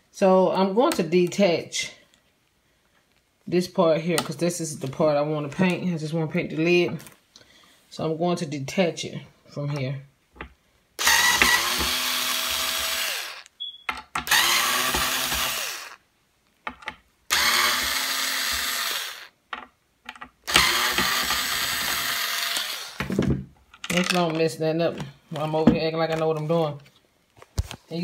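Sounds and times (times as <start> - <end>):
cordless screwdriver whirring: 11.0 - 13.5, 14.2 - 16.0, 17.3 - 19.3, 20.5 - 23.1.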